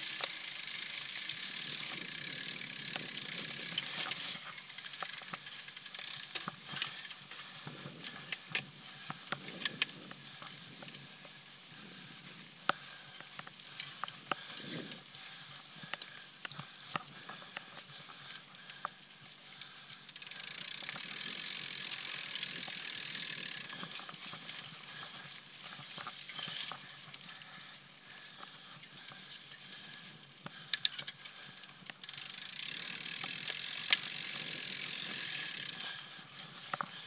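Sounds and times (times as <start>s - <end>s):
bike hub freewheeling ratchet buzz: 0.0s - 7.2s, 19.9s - 23.8s, 32.0s - 36.0s.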